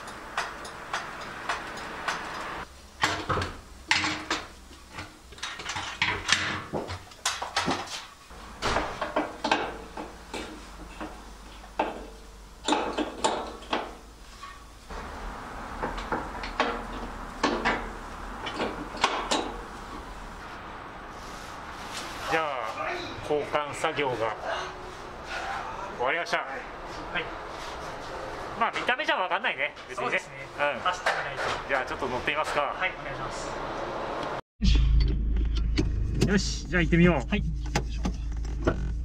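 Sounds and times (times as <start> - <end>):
tools clanking on steel: 3.0 - 8.0, 16.4 - 19.6.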